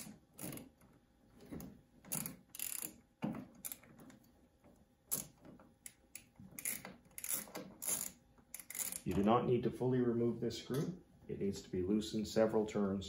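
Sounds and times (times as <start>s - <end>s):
screwdriver clicking and scraping metal: 1.5s - 4.3s, 5.1s - 9.2s.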